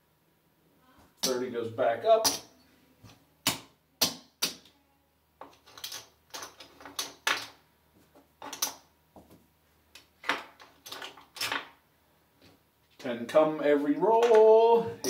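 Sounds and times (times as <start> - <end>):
casino chips clicking: 5.4 - 7.5
dice being handled: 5.4 - 7.6.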